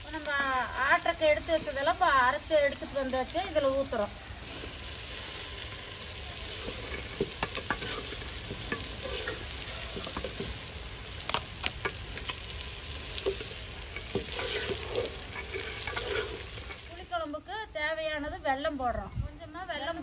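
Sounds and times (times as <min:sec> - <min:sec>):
vegetables sizzling in oil: 0:00.0 - 0:17.3
metal ladle scraping pot: 0:06.4 - 0:10.6, 0:13.1 - 0:16.9.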